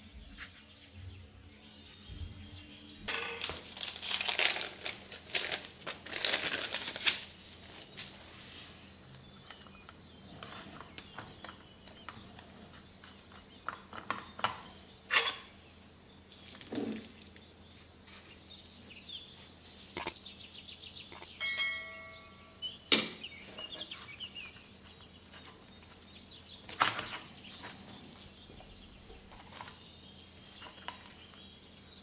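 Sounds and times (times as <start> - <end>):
ringing clink: 21.4 - 23.2.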